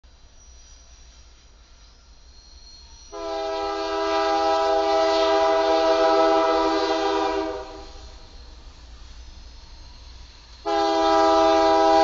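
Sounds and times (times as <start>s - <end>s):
locomotive air horn: 3.1s - 8.1s, 10.6s - 12.0s.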